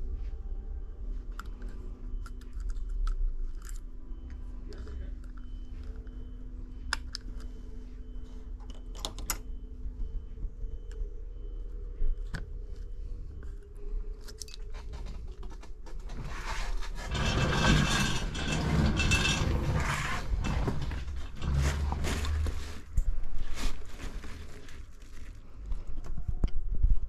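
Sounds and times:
continuous rustling: 0:12.7 - 0:27.0.

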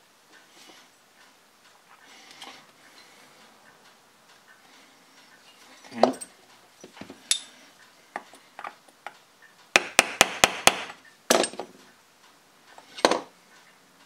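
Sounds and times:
hand tools clicking and knocking: 0:05.9 - 0:11.8, 0:12.7 - 0:13.3.

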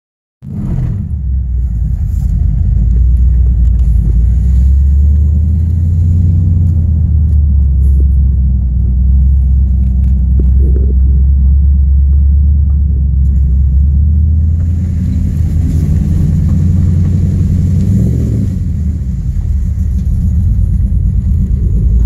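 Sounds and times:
car engine idling rumble: 0:00.4 - 0:22.0.

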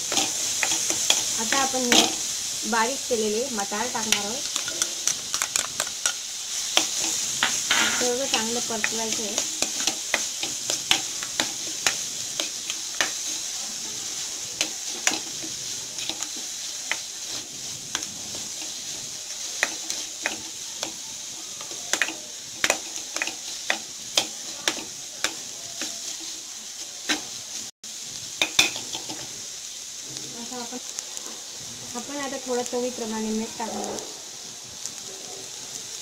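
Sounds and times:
spatula scraping and tapping pan: 0:00.0 - 0:02.3, 0:04.0 - 0:21.0, 0:21.6 - 0:27.4
vegetables sizzling in oil: 0:00.0 - 0:36.0.

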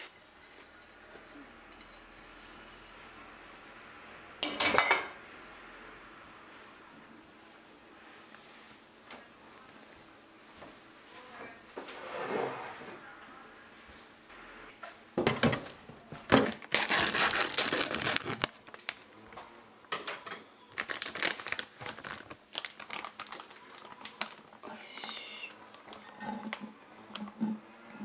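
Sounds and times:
plastic bag crinkling: 0:16.4 - 0:19.1, 0:20.7 - 0:26.6.

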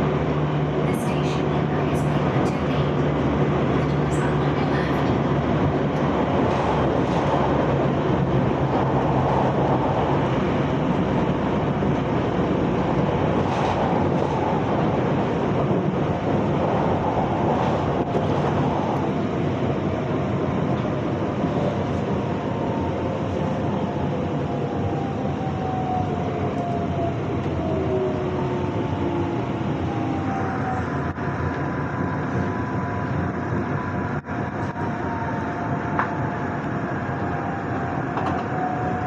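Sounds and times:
train wheels rumbling on rails: 0:00.0 - 0:39.0.

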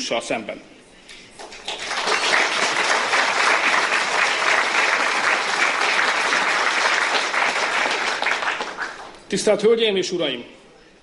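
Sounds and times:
audience applause: 0:01.4 - 0:09.3.

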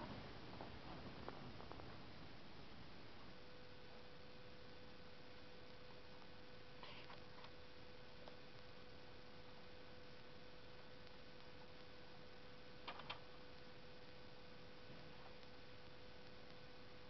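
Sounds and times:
faint steady hum: 0:00.0 - 0:17.0
small clicks: 0:12.8 - 0:13.3.

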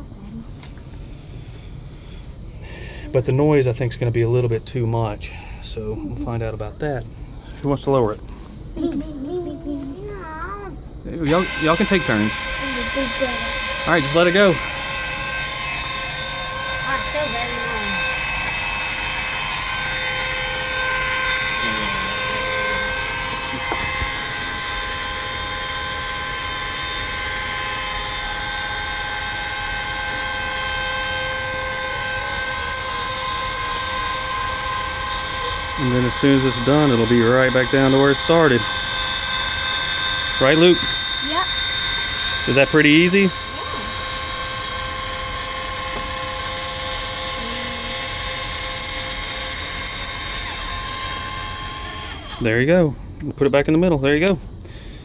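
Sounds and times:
electric actuator motor whine: 0:11.0 - 0:52.7.

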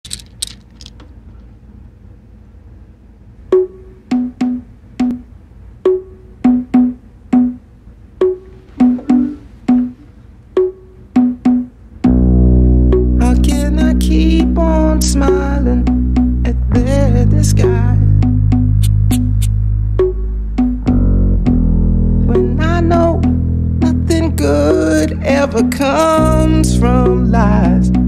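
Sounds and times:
band with bass guitar: 0:12.0 - 0:28.0
cabasa rasps: 0:18.8 - 0:19.5.

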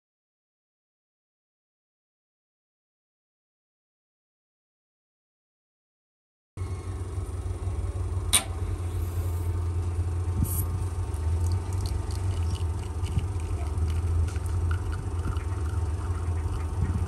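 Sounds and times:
espresso pump hum: 0:06.6 - 0:17.0
sharp click: 0:08.3 - 0:08.6
brief hiss: 0:10.4 - 0:10.7.

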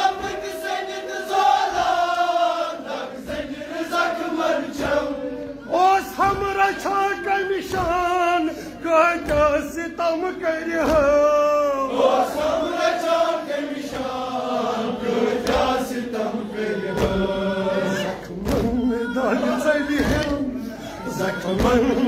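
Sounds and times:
voices chanting along: 0:00.0 - 0:22.0
man chanting a lament: 0:05.5 - 0:12.4, 0:16.3 - 0:22.0.

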